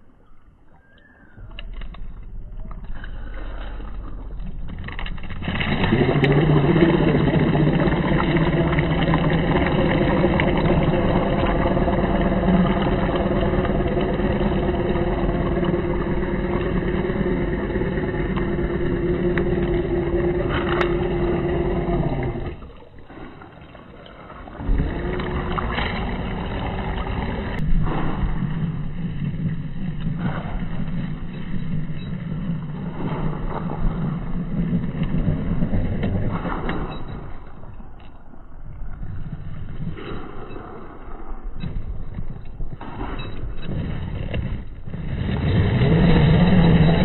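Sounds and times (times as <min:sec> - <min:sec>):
electric motor whining: 0:05.4 - 0:22.8.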